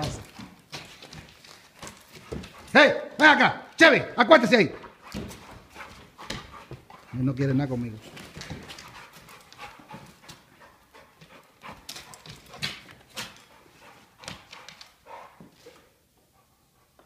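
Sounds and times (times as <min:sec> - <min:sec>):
dog claws clicking on hard floor: 0:00.0 - 0:02.7, 0:08.0 - 0:10.5, 0:11.2 - 0:13.6.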